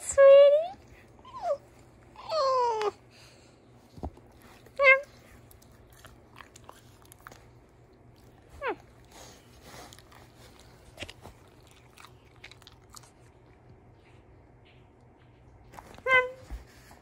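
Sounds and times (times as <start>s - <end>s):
dog whining: 0.6s - 3.1s, 8.4s - 9.4s, 15.9s - 16.7s
dog licking and mouth clicks: 5.2s - 8.5s, 9.8s - 16.0s.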